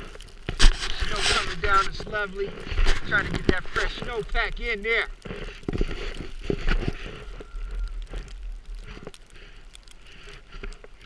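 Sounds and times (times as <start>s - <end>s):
jacket and glove rustle: 0.0s - 8.2s.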